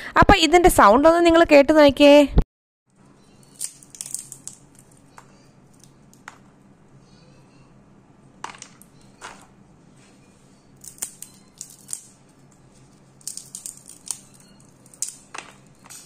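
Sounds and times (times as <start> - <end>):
peanut shells cracking: 3.2 - 6.5, 8.4 - 9.5, 10.7 - 16.0.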